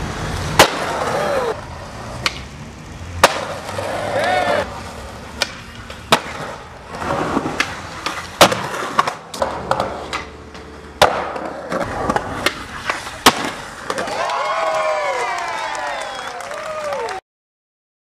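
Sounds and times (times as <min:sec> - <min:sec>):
skateboard wheels rolling on concrete: 0:00.0 - 0:17.2
skateboard cracks and clacks: 0:00.2 - 0:02.5, 0:03.2 - 0:15.0.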